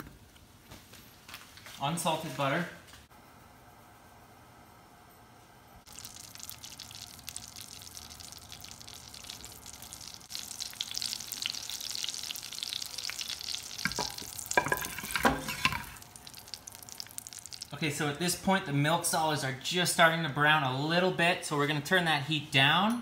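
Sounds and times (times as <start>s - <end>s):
butter sizzling in a pan: 5.9s - 17.7s.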